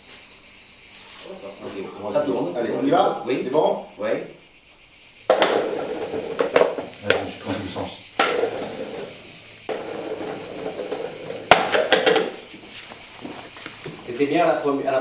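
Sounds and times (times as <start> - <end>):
steady hiss: 0.0 - 15.0
knocks and clatters on tiled floor: 5.2 - 14.2.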